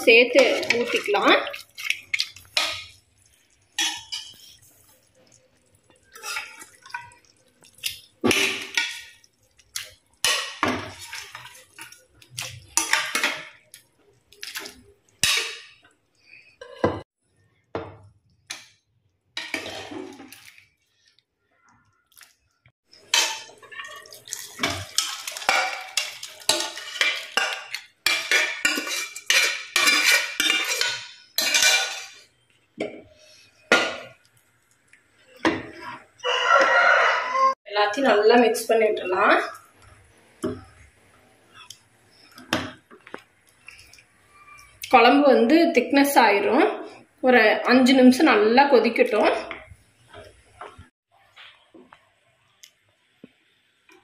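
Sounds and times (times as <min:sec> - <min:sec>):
wet splashes: 0:00.1 - 0:04.0, 0:22.0 - 0:27.8
steel ladle clinking on pots: 0:03.8 - 0:04.5, 0:10.2 - 0:13.6, 0:15.2 - 0:15.9, 0:22.9 - 0:32.2.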